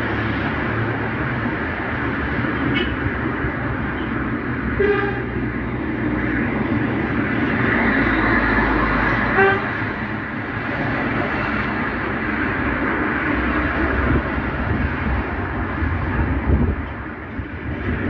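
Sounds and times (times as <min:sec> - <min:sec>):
road traffic rumble: 0:00.0 - 0:18.0
car horn toots: 0:04.8 - 0:05.3, 0:09.3 - 0:09.7.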